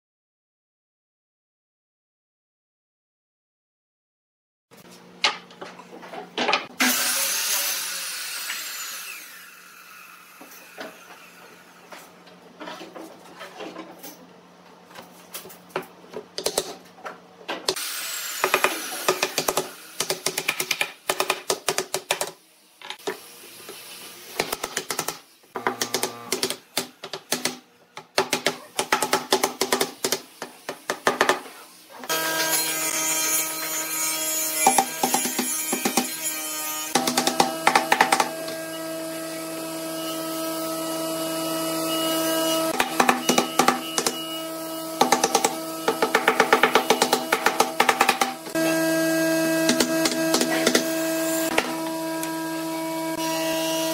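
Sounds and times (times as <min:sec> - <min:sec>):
mallet knocking wood on wood: 0:49.6 - 0:50.9.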